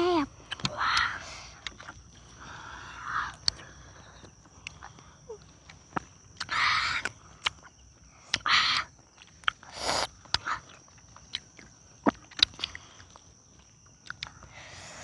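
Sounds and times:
chewing clicks and smacks: 0:00.4 - 0:02.2, 0:03.4 - 0:03.6, 0:04.2 - 0:14.5
short hissing sounds: 0:09.7 - 0:10.1.

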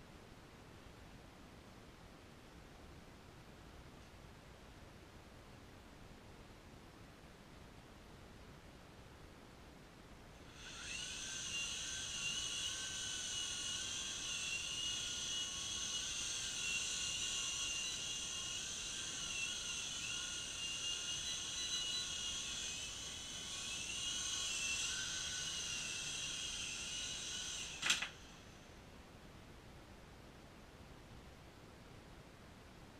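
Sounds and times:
toy helicopter motor whine: 0:10.4 - 0:28.7.

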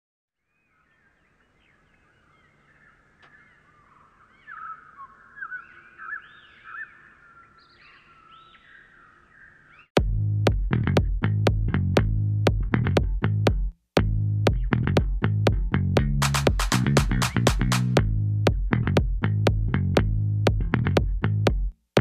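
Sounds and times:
songbirds chirping: 0:00.4 - 0:10.0
electronic dance music: 0:16.0 - 0:18.0.

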